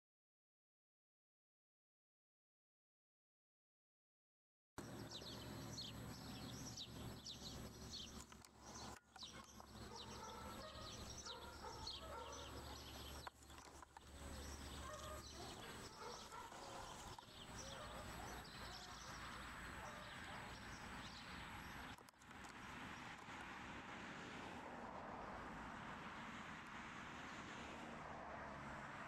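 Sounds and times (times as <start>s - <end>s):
birds chirping: 4.8s - 23.4s.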